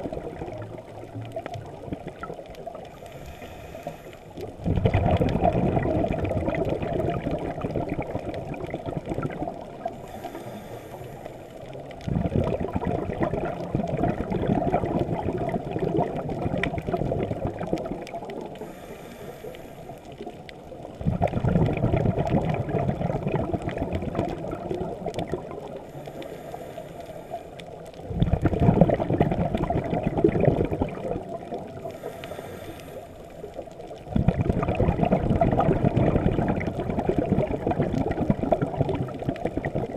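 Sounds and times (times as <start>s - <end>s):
rush of bubbles: 0.0s - 39.9s
faint high hiss of inhale: 2.9s - 4.4s, 9.9s - 11.8s, 18.5s - 20.2s, 25.8s - 27.8s, 31.8s - 33.6s.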